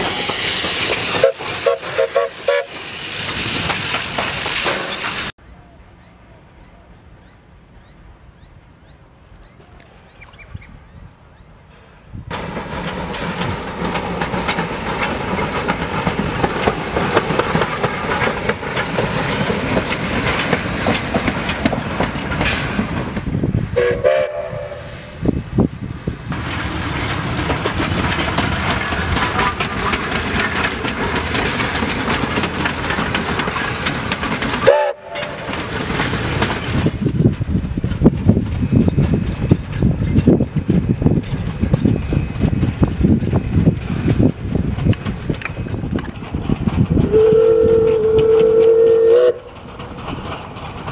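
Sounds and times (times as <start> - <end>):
steam locomotive exhaust beats: 0.0 - 5.3, 10.6 - 50.9
wheels clattering over rail joints: 0.0 - 5.3, 12.3 - 50.9
steam whistle notes: 1.2 - 2.7, 23.8 - 25.2, 34.7 - 35.4, 47.1 - 49.5.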